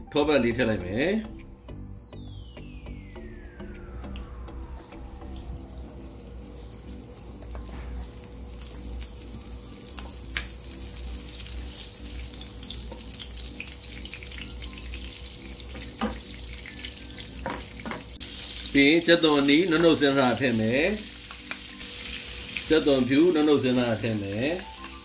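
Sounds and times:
steady low hum: 1.5 - 9.3
butter sizzling in a frying pan: 6.2 - 25.0.

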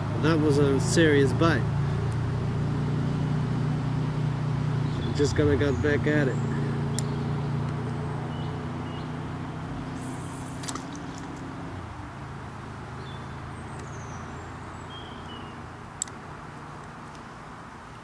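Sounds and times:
vehicle engine droning: 0.0 - 18.0
sharp clicks: 6.9 - 7.8, 10.6 - 11.4, 16.0 - 16.2.

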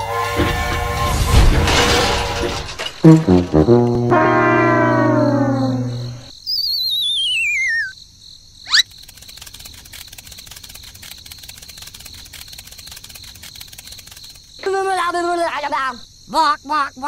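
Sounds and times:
sad trombone note: 3.1 - 6.3
warbling whistle sliding down: 4.2 - 7.9
fast chirping: 5.6 - 7.9, 8.6 - 14.6.

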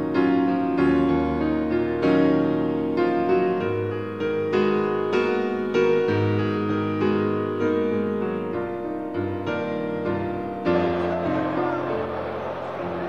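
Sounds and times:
piano background music: 0.0 - 13.0.

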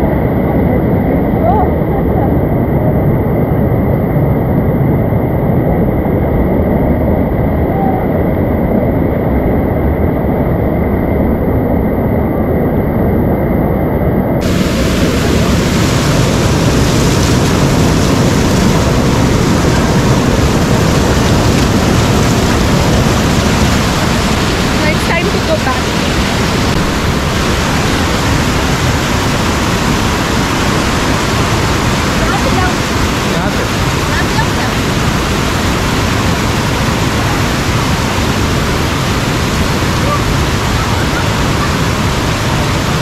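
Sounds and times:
waterfall rushing: 14.4 - 43.0.

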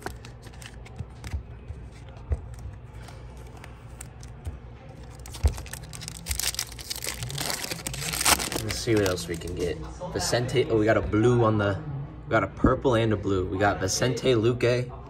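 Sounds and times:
trading cards shuffling: 0.0 - 9.8
foil wrapper crinkling: 5.0 - 9.7.

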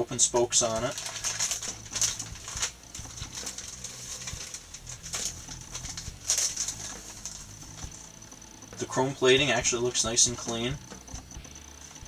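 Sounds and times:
plastic bag crinkling: 0.6 - 8.0.

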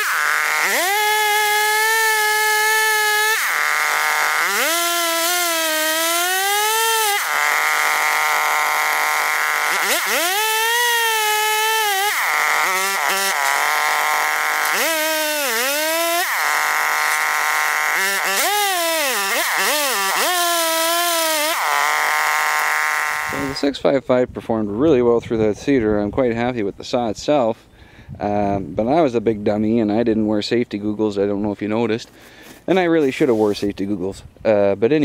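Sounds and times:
chainsaw cutting through log: 0.0 - 23.7.

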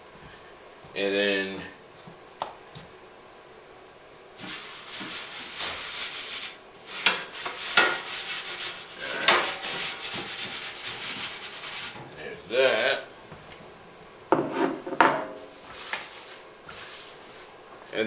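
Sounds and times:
flour rubbed on metal baking sheet: 4.4 - 12.0, 15.4 - 17.5.

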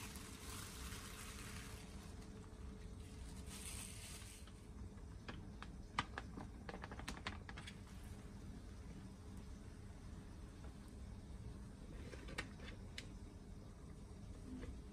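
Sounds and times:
plastic bag crinkling: 0.0 - 4.6
faint plastic rustling: 0.0 - 8.3.

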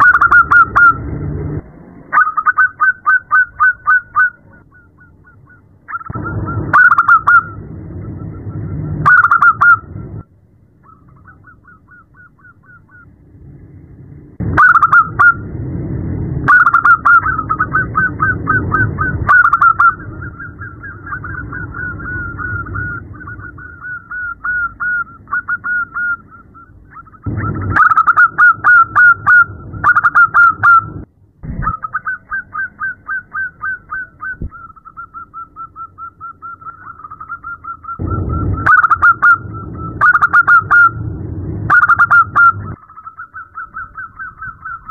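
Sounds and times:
dove cooing in staccato trains: 0.0 - 1.1, 2.1 - 10.2, 14.5 - 15.4, 16.5 - 44.9.

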